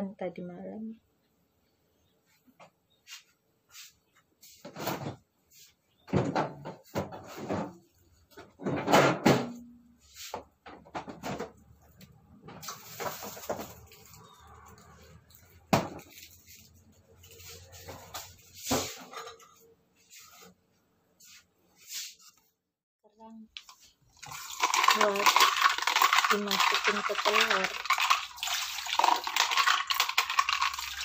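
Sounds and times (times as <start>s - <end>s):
kitchen clatter: 6.1s - 9.8s, 10.7s - 11.7s, 12.5s - 14.8s, 17.4s - 19.7s, 23.6s - 31.0s.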